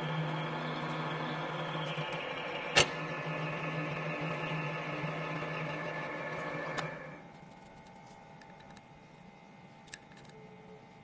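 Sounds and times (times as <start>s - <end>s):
drilling machine humming: 0.0s - 7.3s.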